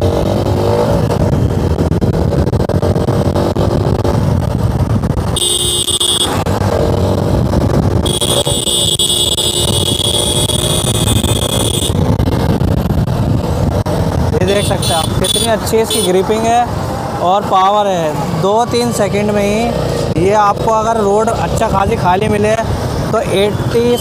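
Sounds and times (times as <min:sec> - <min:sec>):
motorcycle engine accelerating: 0:00.0 - 0:15.4
wind noise: 0:00.0 - 0:17.2
high electronic tone: 0:05.4 - 0:06.4, 0:08.0 - 0:12.0.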